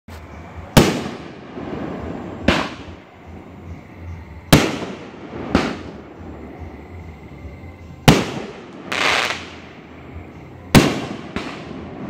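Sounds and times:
firework bangs with echo: 0:00.7 - 0:03.0, 0:04.5 - 0:06.0, 0:08.0 - 0:09.8, 0:10.7 - 0:12.0.

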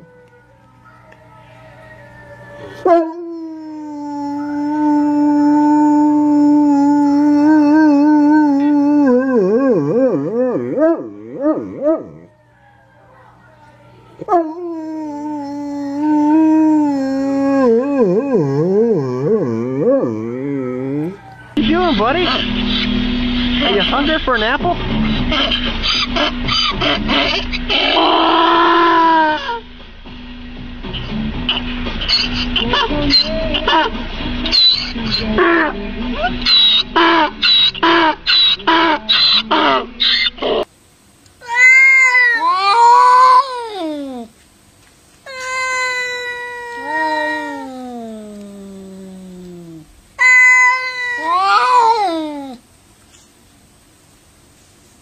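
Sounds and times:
cat yowling: 0:00.0 - 0:10.2, 0:14.2 - 0:21.4, 0:41.4 - 0:44.3, 0:45.3 - 0:52.6
large dog howling: 0:00.0 - 0:13.4, 0:14.2 - 0:21.6, 0:27.7 - 0:29.6, 0:41.5 - 0:44.3, 0:45.3 - 0:52.6
donkey braying: 0:14.7 - 0:21.6, 0:25.3 - 0:29.6, 0:31.4 - 0:40.7, 0:45.3 - 0:52.6.

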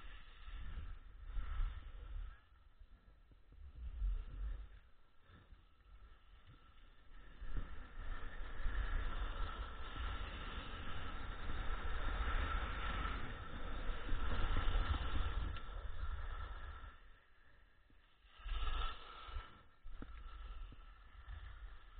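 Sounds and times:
wind on microphone: 0:00.0 - 0:21.9
skis scraping over snow: 0:05.4 - 0:17.0, 0:18.0 - 0:21.9.

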